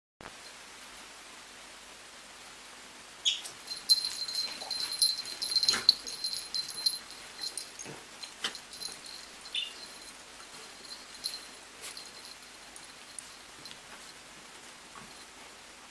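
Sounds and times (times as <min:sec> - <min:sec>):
puppies yipping: 0:03.3 - 0:10.2.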